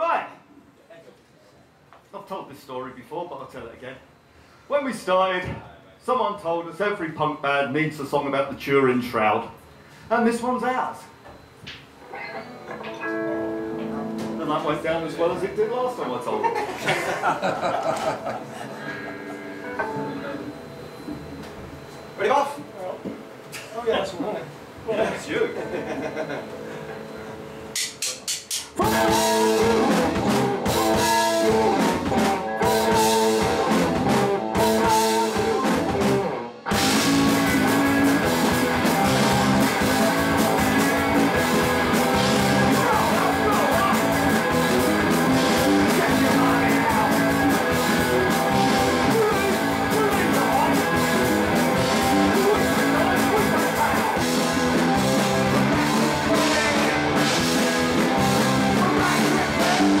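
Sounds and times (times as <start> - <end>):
guitar riff in short stabs: 12.1 - 14.5, 28.8 - 60.0
punk rock band playing: 12.4 - 14.6, 17.2 - 21.3, 28.7 - 60.0
drums: 27.8 - 60.0.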